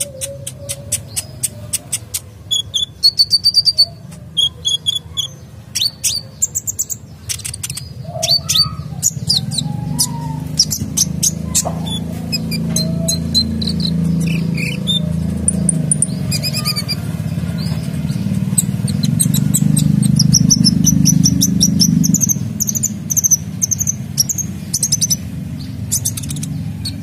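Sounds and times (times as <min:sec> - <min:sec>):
bird singing high chirps and trills: 0:00.0 - 0:27.0.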